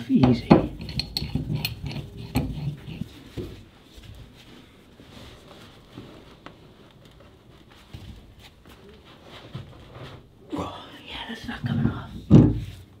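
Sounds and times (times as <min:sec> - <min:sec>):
pipe wrench clinking on metal valve: 0:00.4 - 0:03.0.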